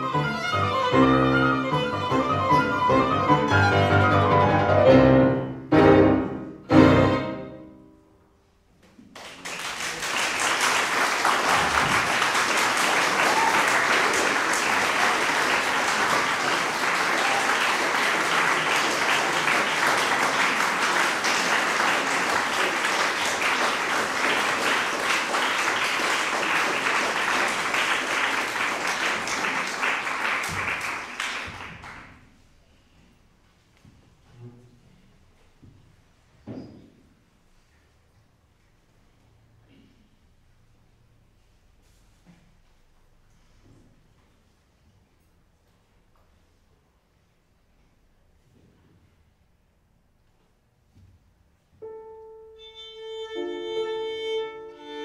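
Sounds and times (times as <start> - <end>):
violin and piano chords: 0.0 - 7.8, 51.8 - 55.0
audience applauding: 9.1 - 32.2.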